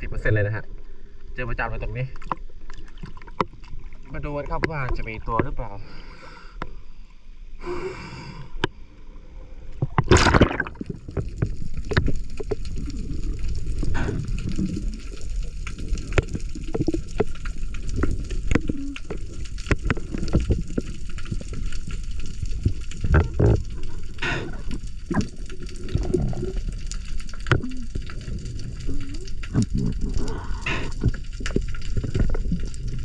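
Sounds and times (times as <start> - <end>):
low underwater rumble: 8.7 - 33.0
sharp underwater clicks: 9.8 - 33.0.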